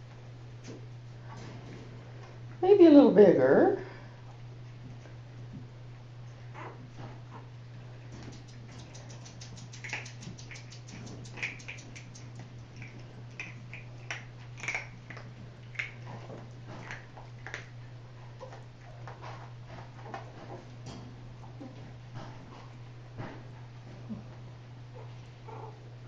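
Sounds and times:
steady low hum: 0:00.0 - 0:26.0
puppies pawing and scrambling: 0:06.6 - 0:24.2.

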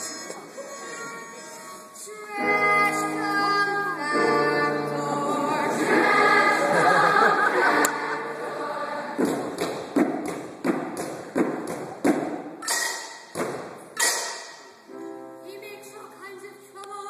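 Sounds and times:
choral singing: 0:00.9 - 0:09.6.

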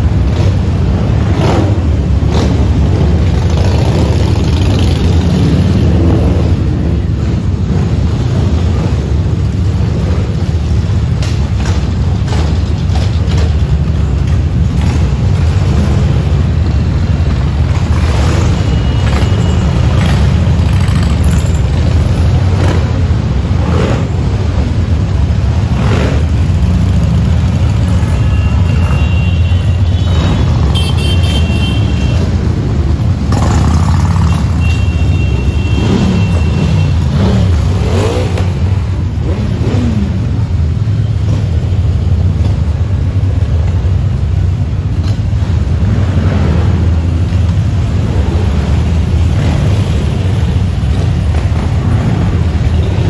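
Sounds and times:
motorcycle revving: 0:00.0 - 0:53.0
motorcycles rumbling past: 0:31.9 - 0:44.4.

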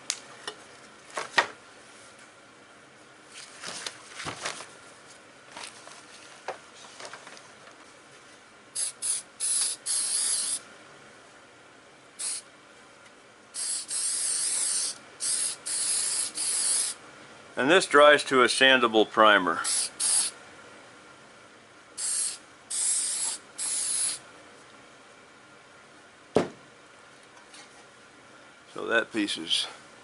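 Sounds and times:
aerosol can spraying: 0:08.8 - 0:10.6, 0:12.2 - 0:12.4, 0:13.6 - 0:17.0, 0:19.6 - 0:20.4, 0:22.0 - 0:24.2.

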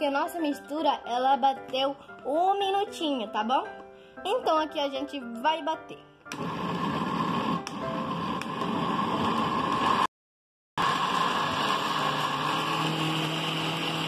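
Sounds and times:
blender motor running: 0:06.3 - 0:10.1, 0:10.8 - 0:14.0.

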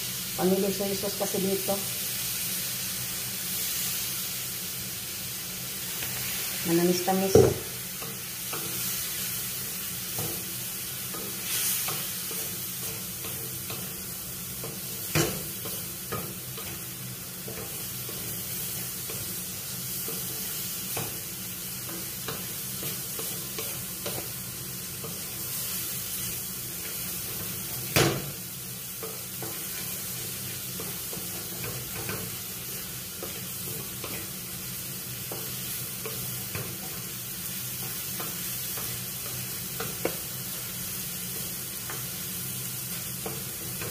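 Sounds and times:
vegetable sizzling in a pan: 0:00.0 - 0:43.9
spatula knocking on a pan: 0:07.3 - 0:07.7, 0:14.6 - 0:16.4.

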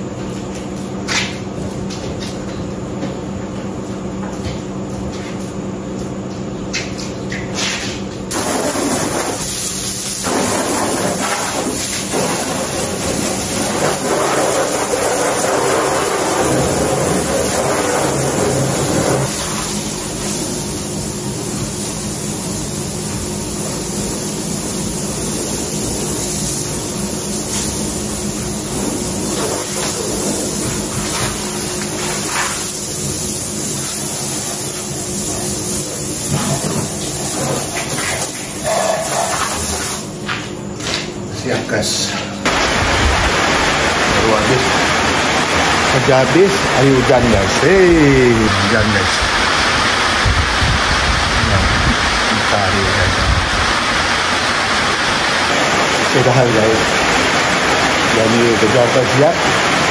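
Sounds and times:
steady hum: 0:00.0 - 0:59.9
hose water spraying on car: 0:08.3 - 0:40.4, 0:42.4 - 0:59.9.

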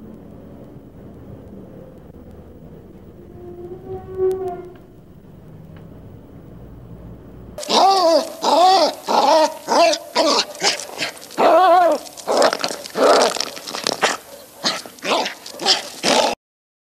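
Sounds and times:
animal snarling: 0:07.6 - 0:16.4
animal yelping: 0:07.6 - 0:16.4.

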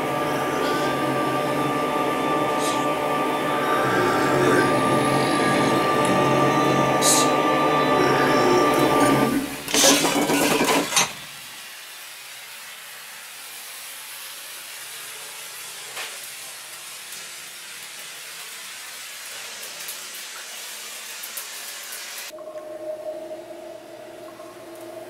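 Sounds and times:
loud rush of noise: 0:00.0 - 0:09.7.

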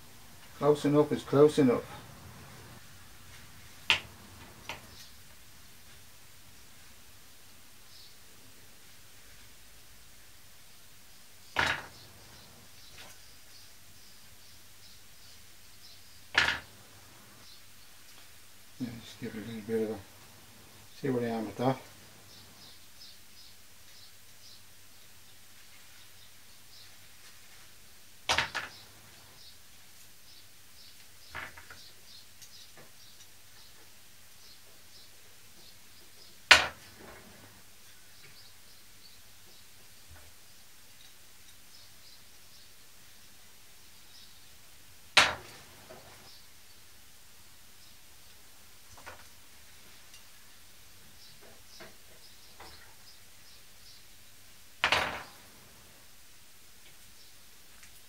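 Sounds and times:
loud sharp knock: 0:11.6 - 0:12.0, 0:45.2 - 0:45.6.

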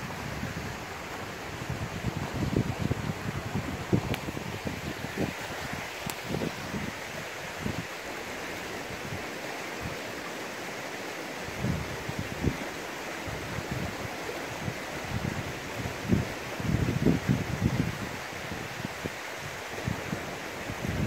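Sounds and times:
wind buffeting microphone: 0:00.0 - 0:08.0, 0:13.3 - 0:21.0
steady outdoor hiss: 0:00.0 - 0:21.0.

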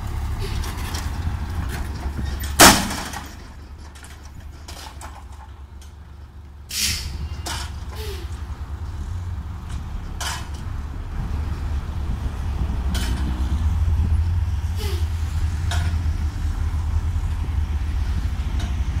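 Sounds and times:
diesel truck engine running: 0:00.0 - 0:19.0
air hiss bursts: 0:06.7 - 0:07.2.

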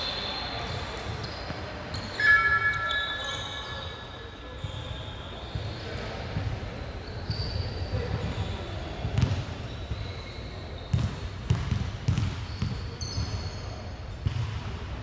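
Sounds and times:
short high squeak: 0:01.2 - 0:05.5
basketball bouncing on wooden floor: 0:10.9 - 0:12.8.

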